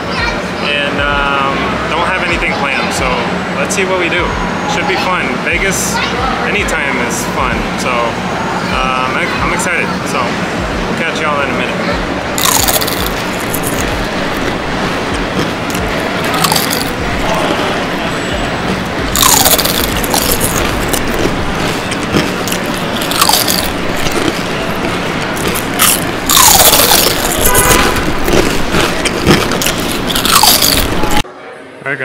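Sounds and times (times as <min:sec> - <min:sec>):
traffic hum in parking garage: 0:00.0 - 0:32.0
chip bag crinkling: 0:12.4 - 0:14.6, 0:15.4 - 0:17.5, 0:19.2 - 0:31.2
chips crunching: 0:12.4 - 0:31.2.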